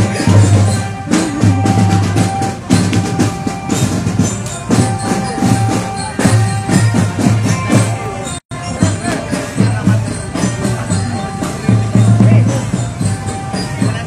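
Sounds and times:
loud music with heavy drums: 0.0 - 14.0.

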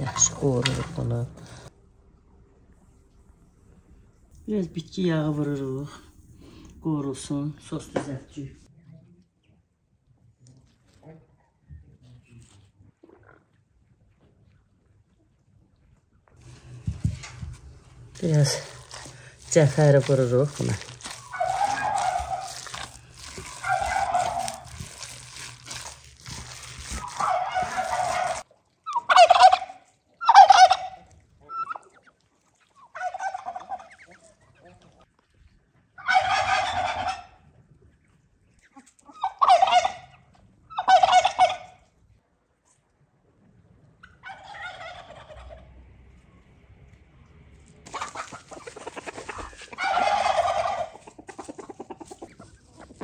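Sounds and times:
turkey gobbling: 20.0 - 34.8, 35.9 - 37.5, 38.6 - 41.9, 44.0 - 45.7, 47.9 - 53.0.

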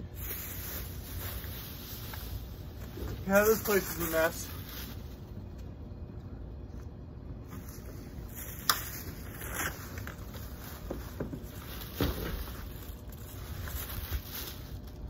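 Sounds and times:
low steady rumble: 0.0 - 15.0
plastic rustling and crackling: 7.7 - 15.0
box thud in dumpster: 11.2 - 12.6.

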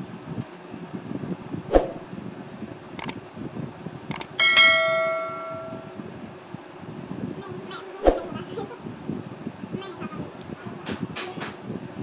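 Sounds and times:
short clicks: 4.1 - 4.4
bright bell chime: 4.4 - 6.0.

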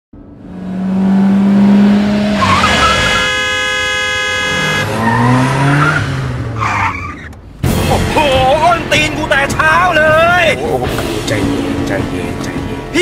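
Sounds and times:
car driving in traffic: 0.2 - 7.7
car horn blast: 2.4 - 5.4
tire squeal: 2.4 - 7.4.

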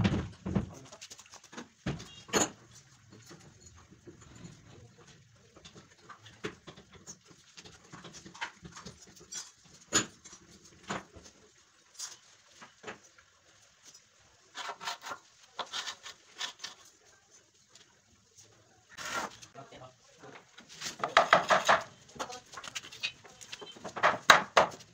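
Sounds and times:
wooden battens knocking on concrete: 20.8 - 24.9.

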